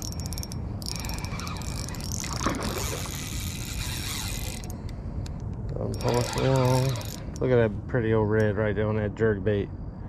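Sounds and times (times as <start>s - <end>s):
fishing reel clicking and whirring: 0.0s - 5.0s, 5.7s - 7.5s.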